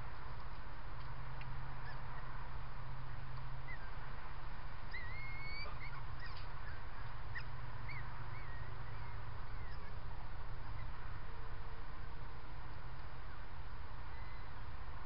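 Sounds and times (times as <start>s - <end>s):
microphone hiss and hum: 0.0s - 15.0s
high bird chirps and whistles: 4.9s - 6.8s.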